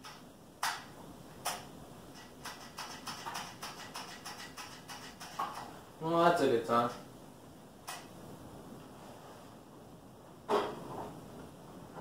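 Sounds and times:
sharp clicks: 0:00.0 - 0:05.7, 0:07.8 - 0:08.1
hands clicking and tapping on engine: 0:01.4 - 0:05.7.

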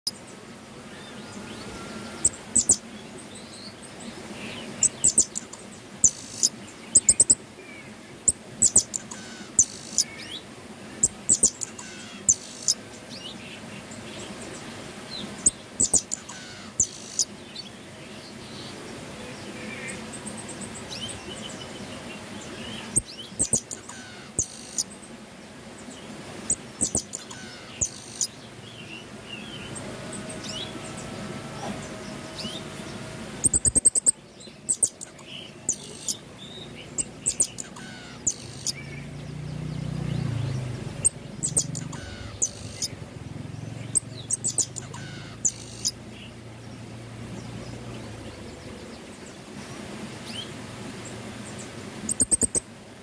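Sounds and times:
other birds chirping: 0:00.0 - 0:46.4, 0:51.4 - 0:52.6
finch high clicking song: 0:02.2 - 0:02.9, 0:04.6 - 0:07.4, 0:08.3 - 0:10.4, 0:11.0 - 0:12.8, 0:15.2 - 0:17.4, 0:22.8 - 0:25.0, 0:26.5 - 0:28.4, 0:31.9 - 0:39.1, 0:39.8 - 0:43.0, 0:43.7 - 0:46.0, 0:52.1 - 0:52.7.

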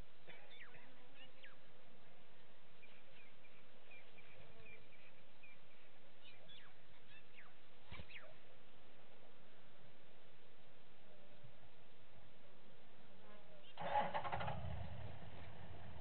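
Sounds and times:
birds calling: 0:00.0 - 0:01.8, 0:02.4 - 0:08.6
steady outdoor hiss: 0:00.0 - 0:16.0.

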